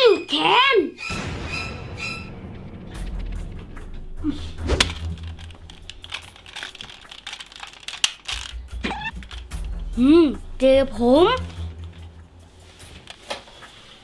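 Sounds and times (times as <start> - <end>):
plastic toy blaster clicks and rattles: 4.8 - 9.8.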